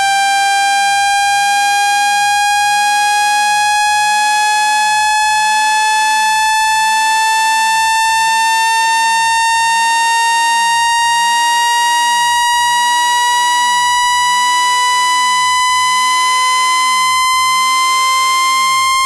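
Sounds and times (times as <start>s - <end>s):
buzzy electronic rising tone: 3.8s - 19.0s.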